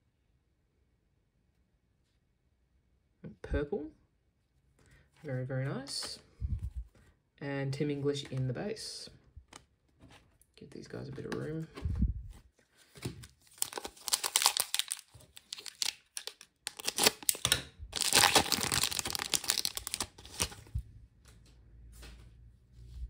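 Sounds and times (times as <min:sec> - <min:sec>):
foil pack crinkling: 0:13.3 - 0:20.7.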